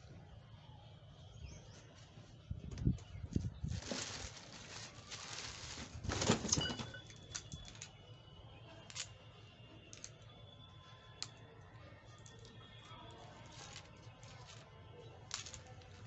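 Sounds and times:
plastic bag crinkling: 3.3 - 7.9, 13.1 - 16.0.

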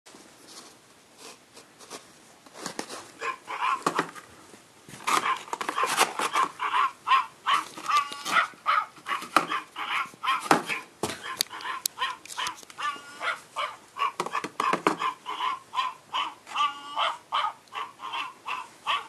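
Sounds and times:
dog whining and yipping: 5.2 - 19.0.

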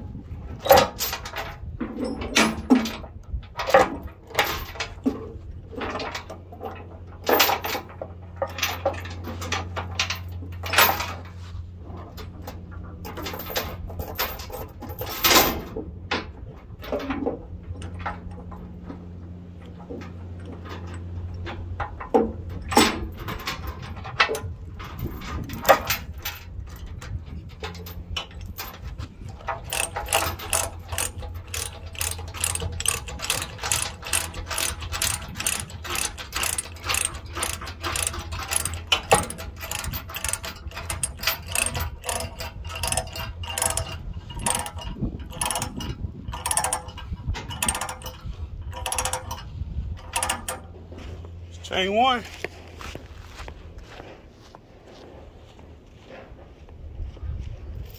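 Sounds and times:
low hum: 0.0 - 57.9
chain clanking: 0.5 - 52.2
ratchet clicking: 29.4 - 50.7.

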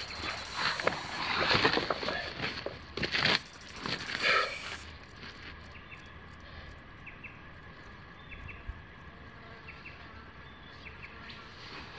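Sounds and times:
bird chirping: 7.0 - 8.7.

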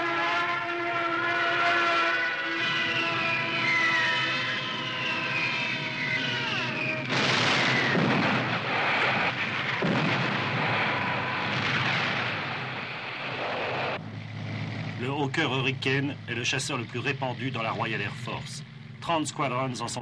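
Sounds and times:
descending whistle: 1.2 - 8.1
bomb explosions: 4.3 - 14.0.

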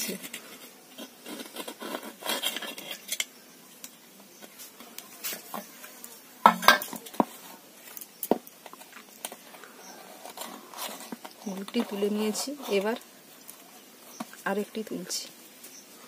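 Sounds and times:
cookware and utensils clinking: 6.4 - 7.1.

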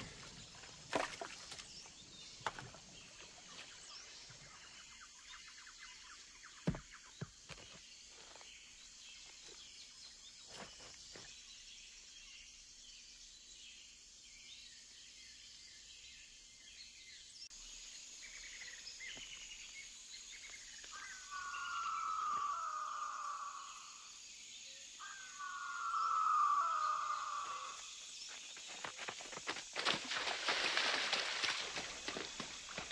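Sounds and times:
insects: 0.0 - 32.9
rock and wood knocking: 6.6 - 7.8
falling bird cry: 25.0 - 27.9.

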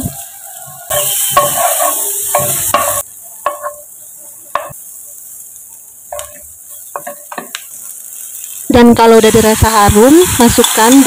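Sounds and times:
wooden spatula strokes on pan: 0.0 - 5.2
onion sizzling in a pan: 0.0 - 11.0.

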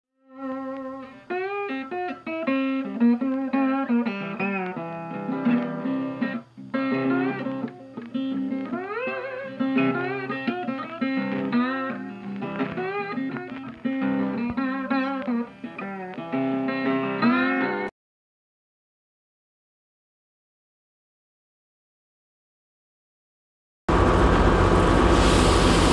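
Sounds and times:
sliding guitar music: 0.2 - 17.9.

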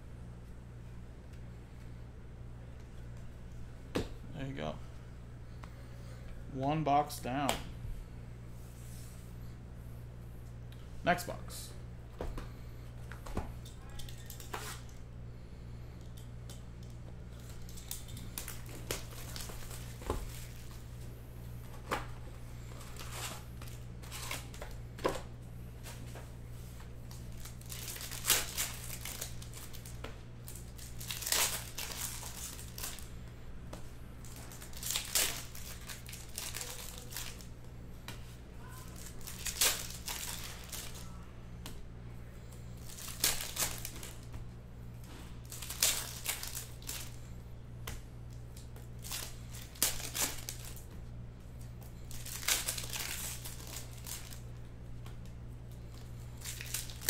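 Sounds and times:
low electrical hum: 0.0 - 57.0
foil packs tearing and crinkling: 17.6 - 20.8, 22.9 - 24.6, 27.3 - 33.1, 34.2 - 37.5, 38.8 - 41.0, 42.8 - 44.2, 45.4 - 47.2, 49.0 - 50.8, 52.1 - 54.4, 56.3 - 57.0.

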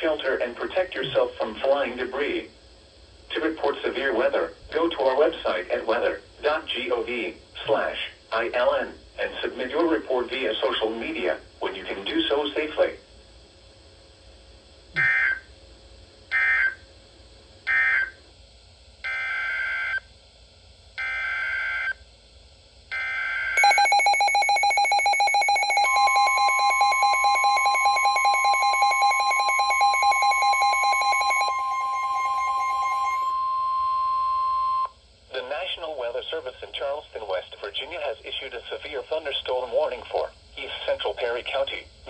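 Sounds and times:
rapidly pulsing radio alarm: 15.0 - 15.5, 16.3 - 16.9, 17.6 - 18.2, 19.0 - 20.1, 21.0 - 22.0, 22.9 - 34.9
harsh digital data bursts: 23.6 - 33.3
steady warning alert tone: 23.6 - 34.9.

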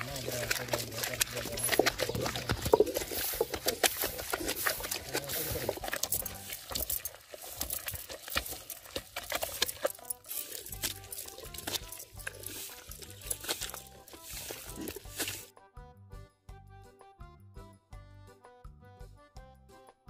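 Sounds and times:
stone pestle grinding in mortar: 0.0 - 15.5.

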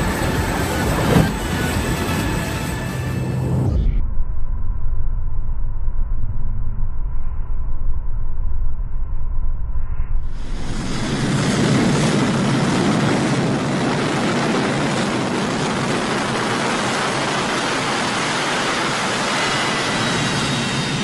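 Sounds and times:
jet engine roaring: 0.0 - 3.9, 10.3 - 21.0
faint high whine: 0.0 - 21.0.

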